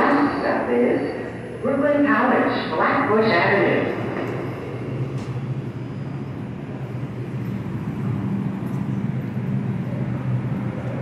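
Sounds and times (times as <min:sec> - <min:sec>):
subway train pulling out: 0:00.0 - 0:11.0.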